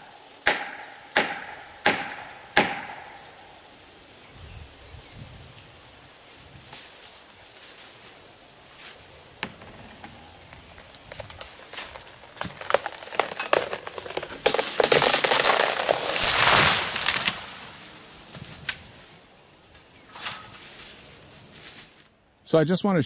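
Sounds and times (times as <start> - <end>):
wood cracking and snapping: 9.4 - 18.9
tree crashing down: 9.4 - 19.0.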